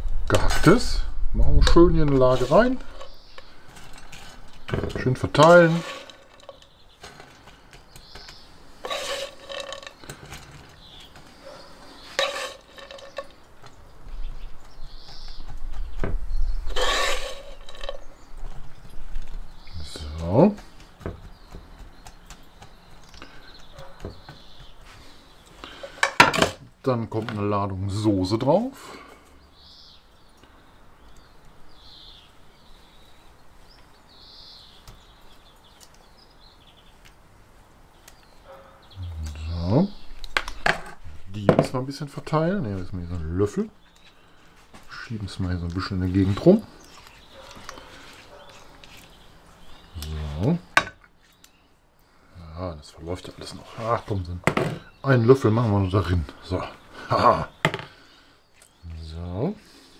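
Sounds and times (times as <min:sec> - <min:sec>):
low steady background noise: 0:00.0 - 0:59.9
spatula scraping frying pan: 0:02.2 - 0:07.6, 0:08.7 - 0:13.4, 0:16.6 - 0:18.2.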